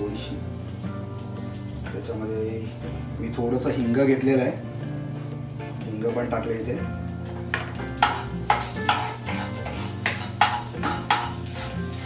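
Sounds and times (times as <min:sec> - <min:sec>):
spices sizzling in hot oil: 0:00.0 - 0:12.0
wooden spatula scraping a pan: 0:07.5 - 0:12.0.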